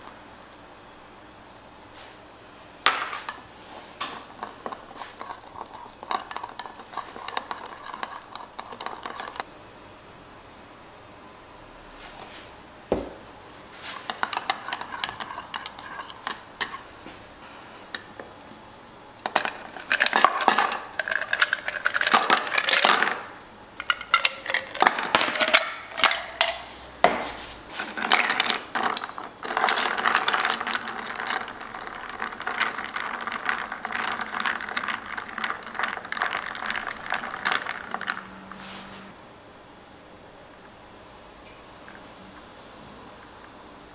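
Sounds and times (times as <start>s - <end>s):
spoon stirring ice clinking glass: 2.9s - 9.4s, 13.9s - 16.8s, 17.9s - 18.2s, 19.2s - 26.6s, 27.8s - 38.4s
ice cubes clattering into glass: 19.3s - 26.6s, 27.9s - 38.4s.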